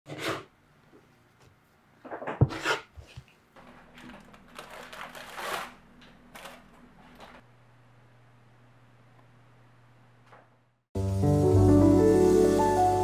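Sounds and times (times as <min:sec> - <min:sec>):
parchment paper crinkling: 0:03.6 - 0:07.4.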